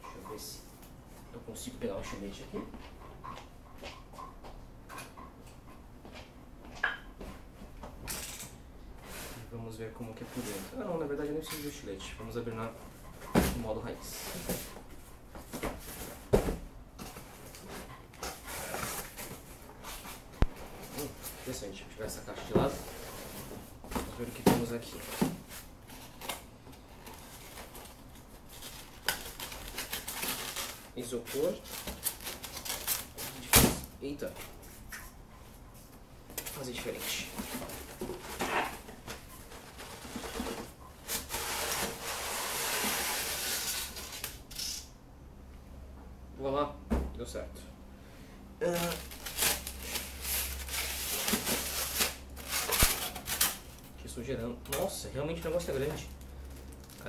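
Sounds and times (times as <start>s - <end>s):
cardboard rustling and scraping: 9.0s - 11.0s, 13.4s - 33.5s, 36.4s - 44.3s, 48.6s - 53.8s
cardboard boxes scraping: 10.2s - 10.8s, 36.9s - 44.1s.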